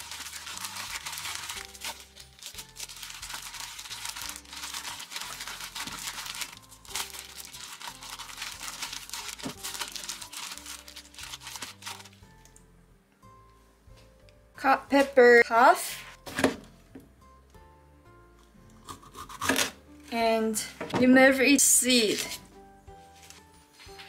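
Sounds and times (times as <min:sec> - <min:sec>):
plastic glove crinkling: 0:00.0 - 0:12.6, 0:21.9 - 0:24.0
background music: 0:00.0 - 0:24.0.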